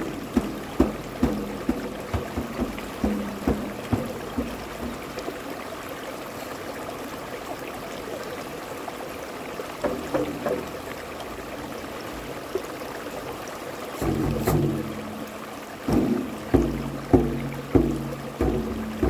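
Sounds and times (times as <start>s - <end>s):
frame drums struck: 0.0s - 5.2s, 14.0s - 19.0s
stream rushing over rocks: 0.0s - 19.0s.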